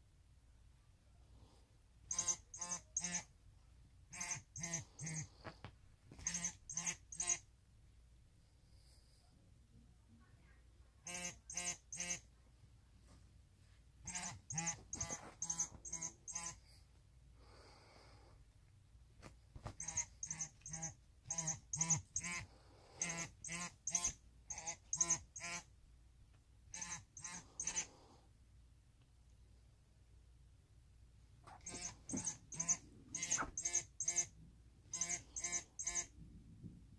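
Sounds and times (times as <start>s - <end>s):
cat toy squeaking: 2.1s - 3.3s, 4.1s - 5.3s, 6.1s - 7.4s, 11.0s - 12.3s, 14.0s - 16.6s, 19.7s - 22.4s, 23.0s - 25.7s, 26.7s - 27.9s, 31.5s - 36.2s.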